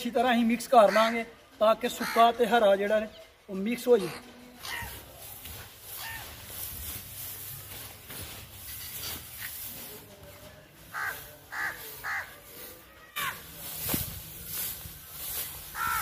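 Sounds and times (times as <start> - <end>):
straw and fodder rustling: 1.7 - 16.0
crow cawing: 2.0 - 2.2, 10.9 - 12.4, 15.7 - 16.0.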